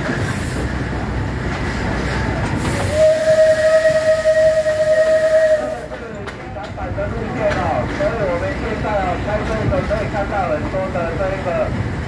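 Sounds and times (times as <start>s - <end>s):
train rumbling past: 0.0s - 12.0s
steam whistle blast: 2.6s - 5.9s.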